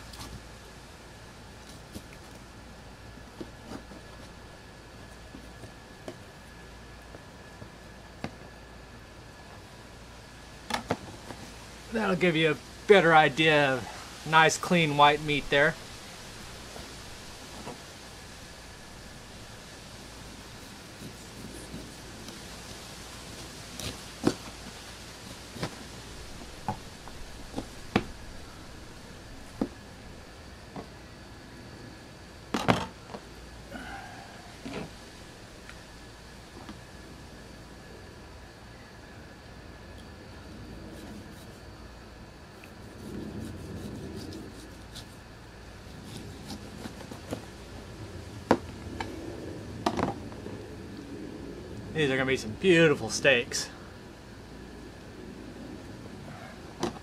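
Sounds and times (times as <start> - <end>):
knife sawing through fish: 20.5 - 22.2, 45.9 - 47.4.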